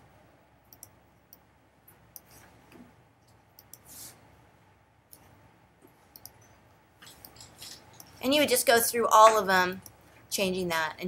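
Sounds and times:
faint computer mouse clicks: 3.6 - 3.9, 6.1 - 6.4.

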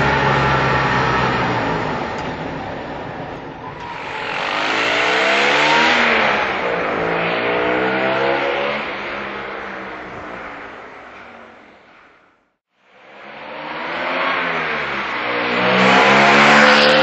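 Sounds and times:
small car engine accelerating past: 3.8 - 9.0, 13.2 - 17.0.

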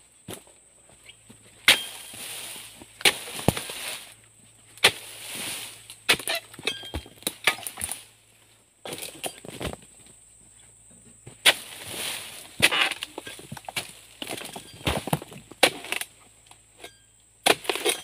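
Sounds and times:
fronds rustling: 0.8 - 10.0, 11.4 - 16.2
chisel striking palm fronds: 1.6 - 2.3, 3.0 - 4.1, 4.8 - 8.0, 11.4 - 16.1, 17.4 - 18.0.

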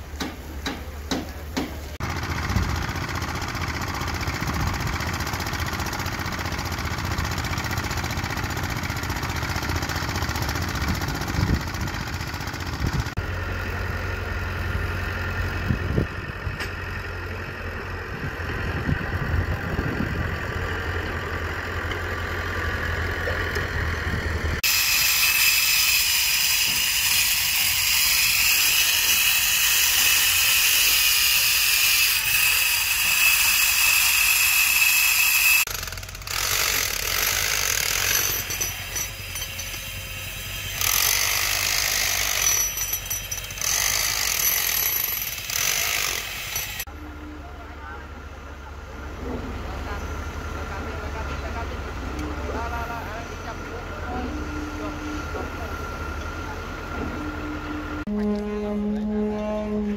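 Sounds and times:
bulldozer diesel engine running: 0.0 - 25.0, 26.7 - 59.9
grinder whining on concrete: 14.7 - 48.2.

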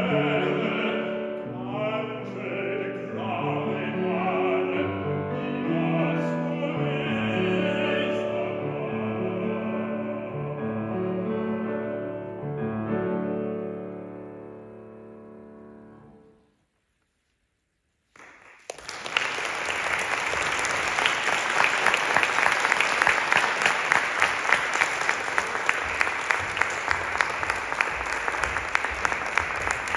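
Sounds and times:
audience applause: 18.1 - 29.9.

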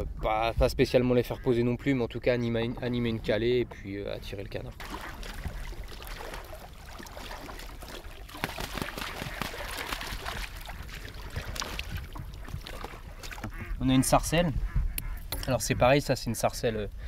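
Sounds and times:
people wading in water: 4.4 - 14.0.

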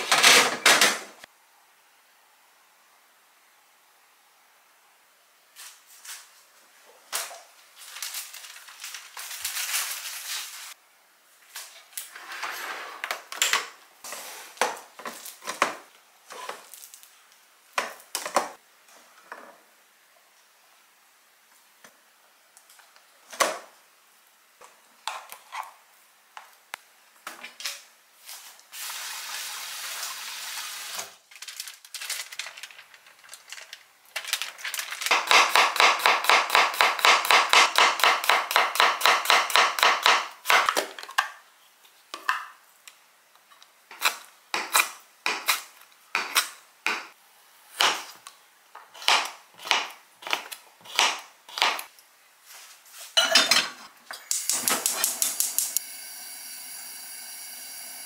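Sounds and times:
hiss: 28.7 - 31.1, 54.3 - 58.0
knife chopping on cutting board: 48.9 - 51.8
kitchen clinks and clatter: 53.2 - 53.8.

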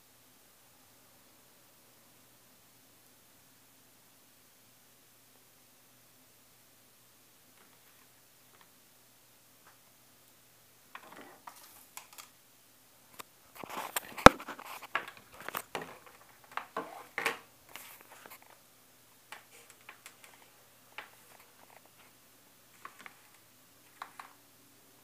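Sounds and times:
cable rustling and scraping: 10.9 - 12.3, 13.2 - 18.6, 19.3 - 24.4.

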